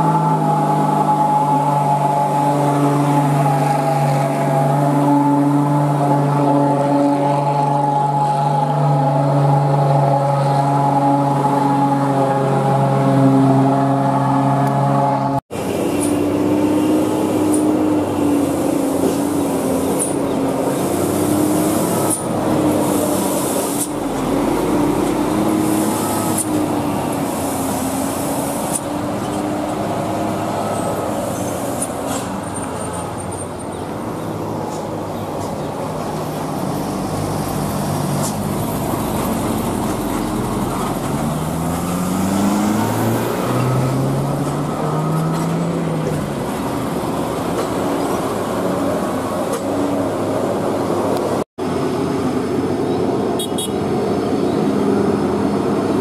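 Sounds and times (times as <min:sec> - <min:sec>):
truck diesel engines passing: 0:00.0 - 0:56.0.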